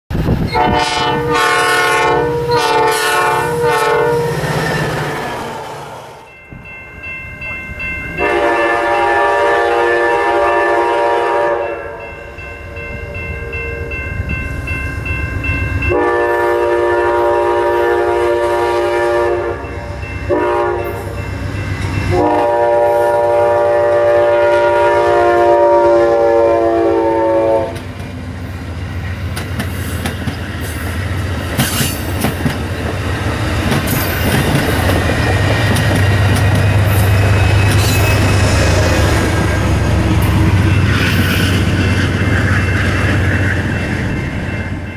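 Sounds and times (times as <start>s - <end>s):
locomotive horn: 0.5s - 6.2s, 8.2s - 12.4s, 15.9s - 21.1s, 22.0s - 27.9s
train wheels clicking over rail joints: 27.7s - 44.9s.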